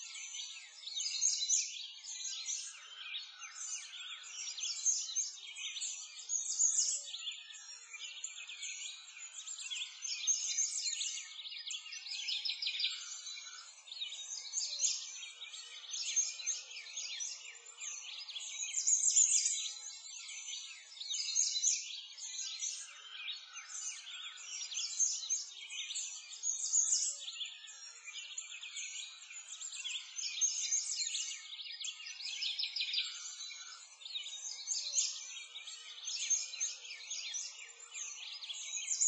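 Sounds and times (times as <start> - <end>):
chorus of small birds chirping: 0.0 - 39.0.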